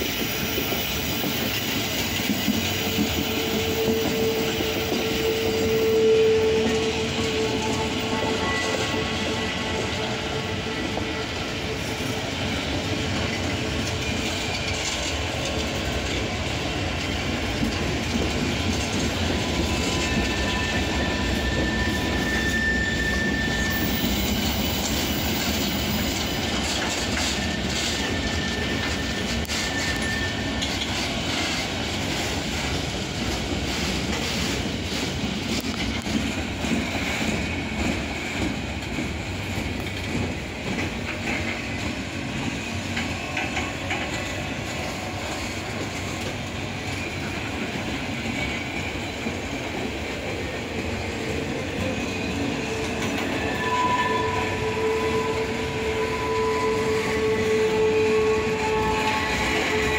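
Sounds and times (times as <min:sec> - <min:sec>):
high wheel squeal: 0:00.0 - 0:11.4, 0:19.3 - 0:31.6, 0:51.9 - 0:59.9
clickety-clack over rail joints: 0:00.0 - 0:59.9
train wheels rumbling on rails: 0:00.0 - 0:59.9.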